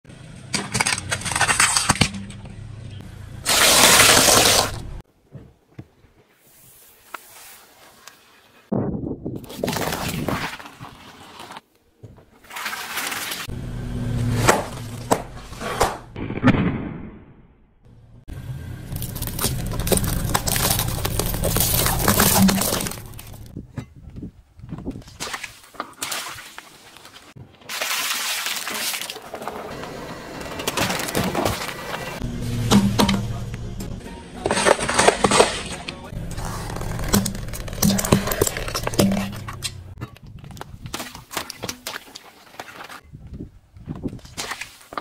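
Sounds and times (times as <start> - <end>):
car low rumble: 13.5 - 15.6, 17.9 - 23.7, 31.8 - 34.4, 36.0 - 40.0
tyre crushing objects cracking: 18.8 - 23.6, 34.5 - 43.0.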